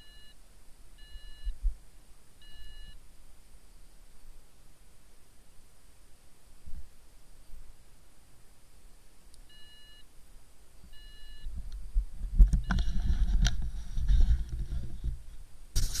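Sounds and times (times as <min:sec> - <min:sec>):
short electronic beeps: 0:00.0 - 0:00.4, 0:02.4 - 0:03.0, 0:10.9 - 0:11.5
wind rumbling on microphone: 0:11.5 - 0:16.0.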